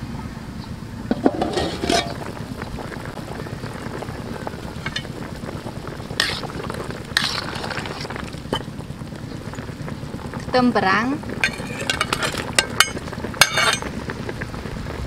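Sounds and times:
stew boiling and bubbling: 0.8 - 15.0
ladle scraping pot: 1.1 - 2.4, 3.8 - 8.8, 11.3 - 13.9.

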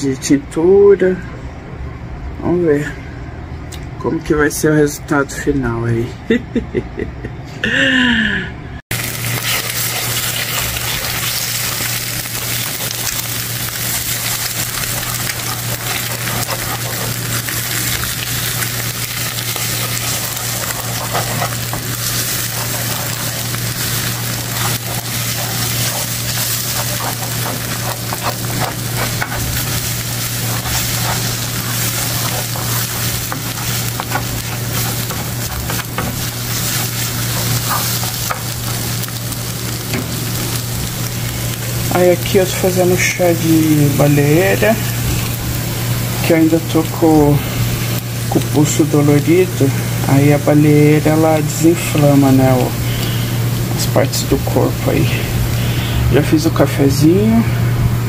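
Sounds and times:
eggs sizzling in a frying pan: 8.9 - 56.2
spatula scraping a pan: 9.2 - 39.2
person speaking: 41.9 - 45.0, 48.3 - 52.8, 53.8 - 55.4.

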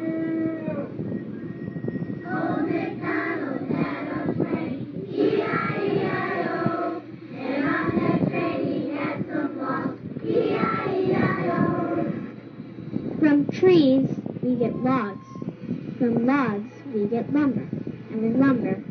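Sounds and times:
child singing: 2.3 - 12.2.

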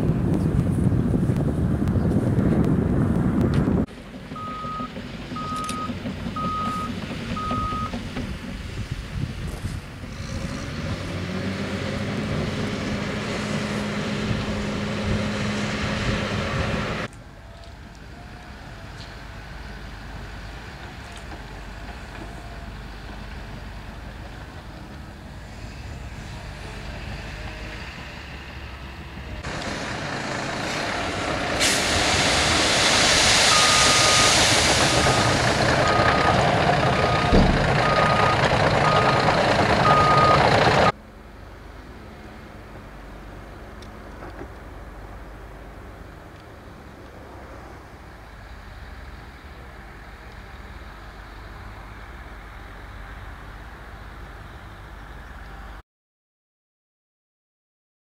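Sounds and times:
diesel earthmoving machinery drone: 0.0 - 55.8
reversing alarm beeping: 4.4 - 8.0, 33.5 - 34.4, 35.0 - 39.2, 39.8 - 40.9
sharp knock: 37.3 - 37.8.

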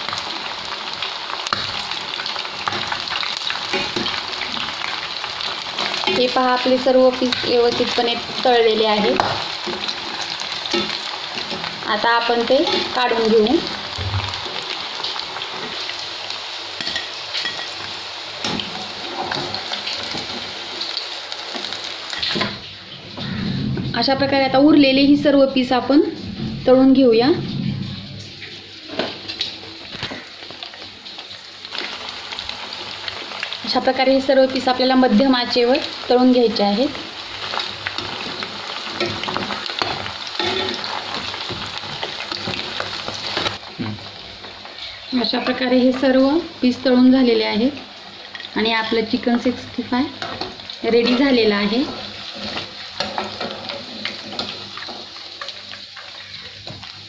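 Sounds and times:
deep-frying oil sizzling: 0.0 - 57.0.

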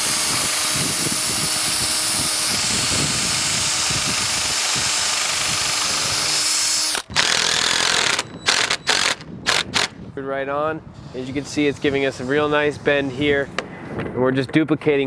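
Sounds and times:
cordless drill running under load: 0.0 - 9.9.

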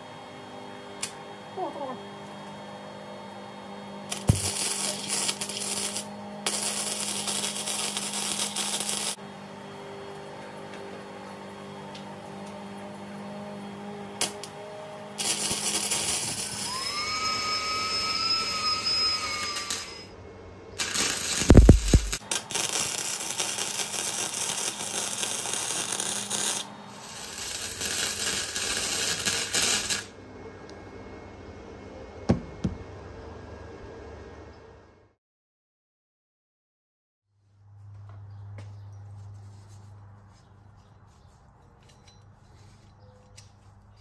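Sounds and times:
welder crackling hiss: 4.1 - 9.2, 15.2 - 20.1, 20.8 - 30.1
steady whine: 15.4 - 22.2.

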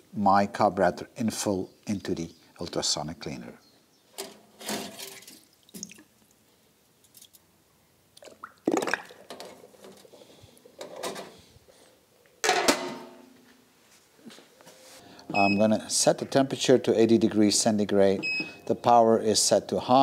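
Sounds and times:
water dripping: 5.2 - 6.4, 8.1 - 9.3
metal lid clanking: 12.4 - 13.2.

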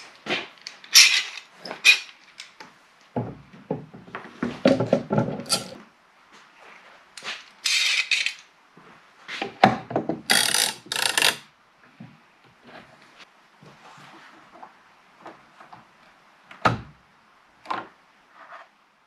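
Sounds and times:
metallic rasps of clamp jaws: 7.6 - 8.4, 10.3 - 11.4.

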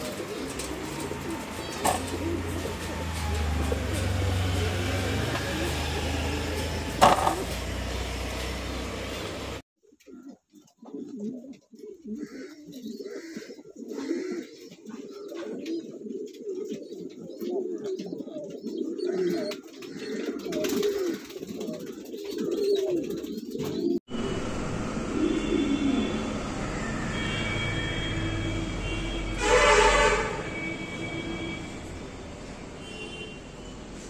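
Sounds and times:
pigeons cooing: 0.0 - 24.0, 25.0 - 26.5.

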